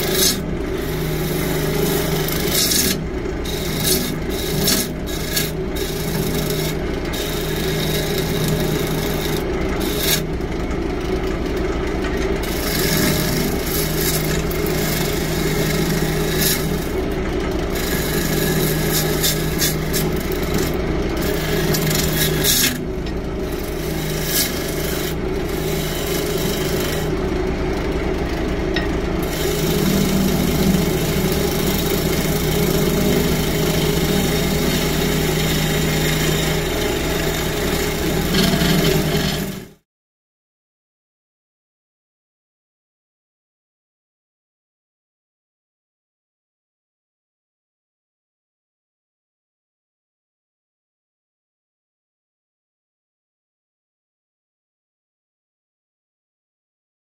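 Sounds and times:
turning tool scraping wood: 0:00.0 - 0:10.3, 0:12.3 - 0:27.2, 0:28.2 - 0:39.8
lathe motor humming: 0:00.0 - 0:39.8.

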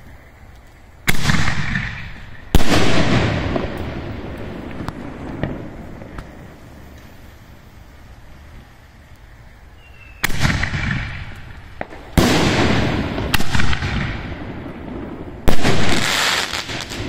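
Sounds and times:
small firework crack: 0:00.0 - 0:17.0
fireworks bangs with rolling echo: 0:01.0 - 0:07.3, 0:09.9 - 0:17.0.

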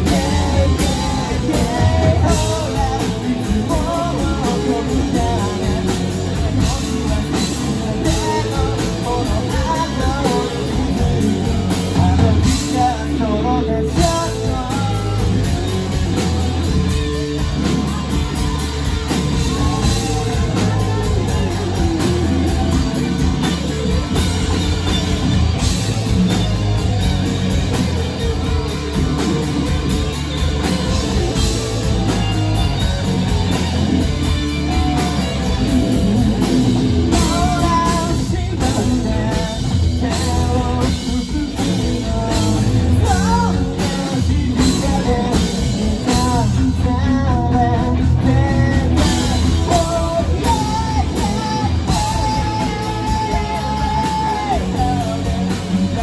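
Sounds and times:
lead vocal singing: 0:00.0 - 0:17.2, 0:18.1 - 0:23.5, 0:34.4 - 0:56.0
live rock band playing: 0:00.0 - 0:56.0.

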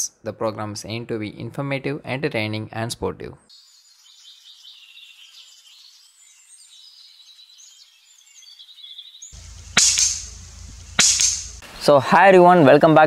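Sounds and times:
small birds chirping: 0:03.4 - 0:11.6
faint outdoor hiss: 0:03.5 - 0:13.0.

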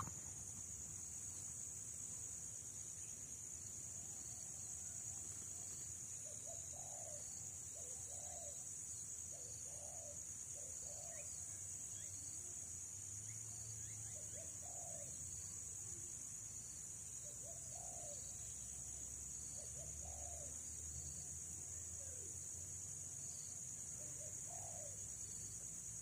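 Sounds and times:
insects droning: 0:00.0 - 0:26.0
dove cooing: 0:19.8 - 0:20.5, 0:24.0 - 0:25.0.

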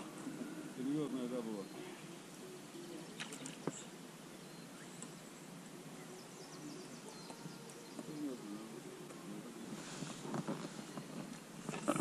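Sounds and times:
faint bird chirps: 0:00.0 - 0:08.9
steady soft hiss: 0:00.0 - 0:12.0.

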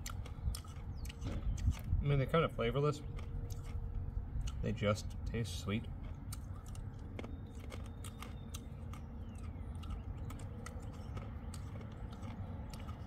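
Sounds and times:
steady low rumble: 0:00.0 - 0:13.0
candy tablets crunched and chewed: 0:02.7 - 0:13.0.

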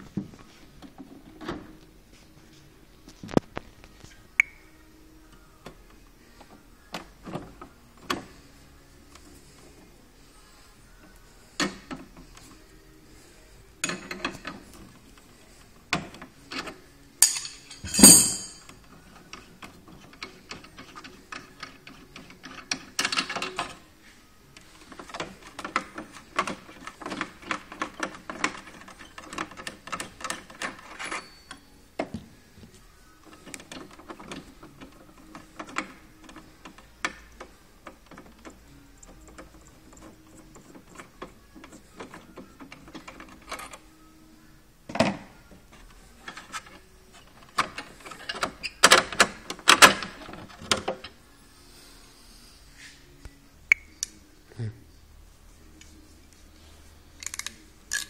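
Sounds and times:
spanner and brass fittings clinking: 0:17.2 - 0:18.7.

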